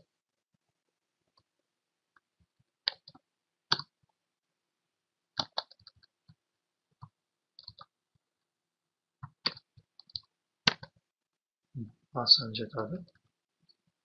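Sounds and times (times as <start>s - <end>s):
computer keyboard keystrokes: 5.4s - 6.1s, 7.6s - 7.9s, 9.3s - 11.0s.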